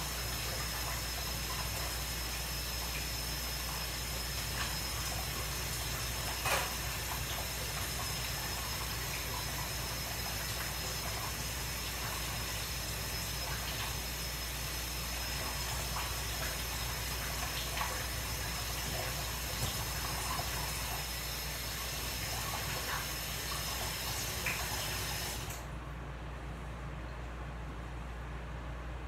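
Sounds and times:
tap running into sink: 0:06.0 - 0:09.5, 0:17.2 - 0:21.0.

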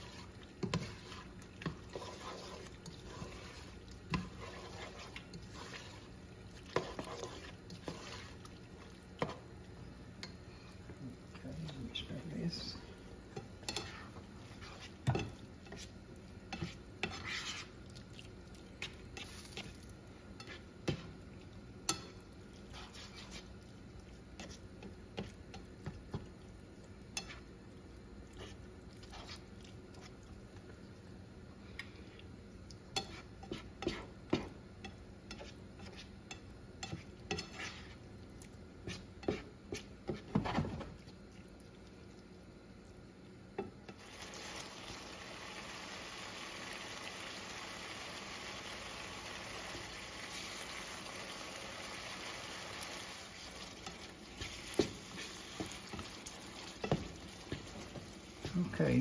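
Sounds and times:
spatula scraping a skillet: 0:00.0 - 0:09.5, 0:13.4 - 0:17.8, 0:18.8 - 0:19.8, 0:20.4 - 0:21.2, 0:21.9 - 0:23.6, 0:27.1 - 0:27.5, 0:28.4 - 0:29.5, 0:33.0 - 0:38.0, 0:38.8 - 0:40.8, 0:53.5 - 0:58.7
spatula tapping pan: 0:06.8 - 0:08.1, 0:53.9 - 0:56.1, 0:56.7 - 0:58.6
faint meat sizzle: 0:10.8 - 0:24.4, 0:43.9 - 0:59.0.

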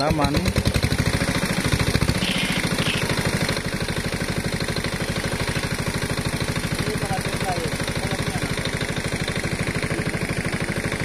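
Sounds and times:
small engine idling: 0:00.0 - 0:11.0.

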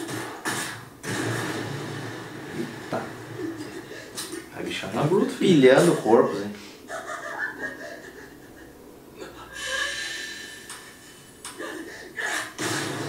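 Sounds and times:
sharp hits: 0:00.0 - 0:03.8, 0:12.6 - 0:13.0
fight scene soundtrack: 0:00.0 - 0:03.9, 0:12.6 - 0:13.0
character breathing and gasping: 0:09.5 - 0:10.8.

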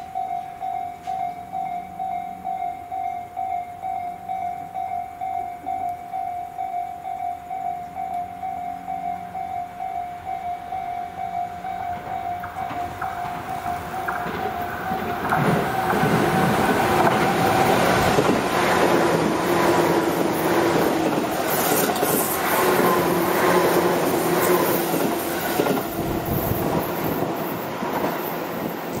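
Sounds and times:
train wheels rumbling on rail: 0:10.5 - 0:29.0
clacks over rail joints: 0:11.8 - 0:29.0
train motor whining: 0:12.1 - 0:29.0.

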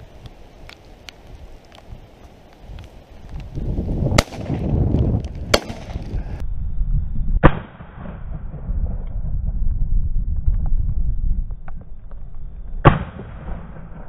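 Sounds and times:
wind rumble on microphone: 0:00.0 - 0:14.0
shotgun shots: 0:04.1 - 0:04.7, 0:05.5 - 0:06.1, 0:12.8 - 0:14.0.

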